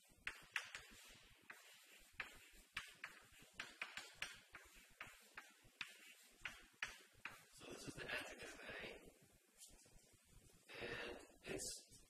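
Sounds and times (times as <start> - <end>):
chalk tapping and scratching: 0.0 - 8.6.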